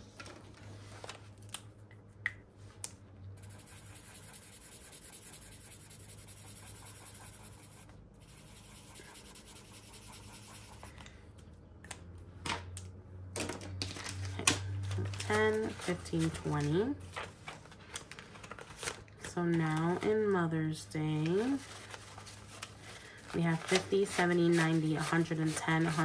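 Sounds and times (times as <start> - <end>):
paper rubbing and scraping: 23.4 - 26.0.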